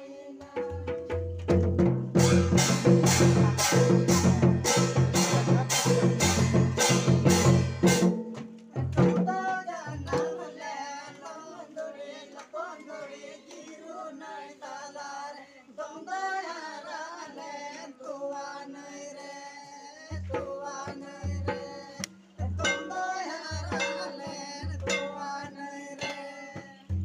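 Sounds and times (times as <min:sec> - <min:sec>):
group of men singing: 0:00.0 - 0:01.0, 0:02.2 - 0:07.9, 0:08.7 - 0:27.0
drums beating loudly: 0:00.6 - 0:10.8, 0:20.1 - 0:25.6, 0:26.6 - 0:27.0.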